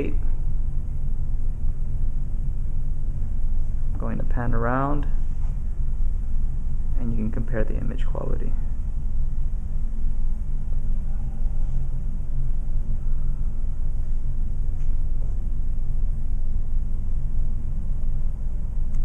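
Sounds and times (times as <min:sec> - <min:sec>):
room background rumble and hum: 0:00.0 - 0:19.0.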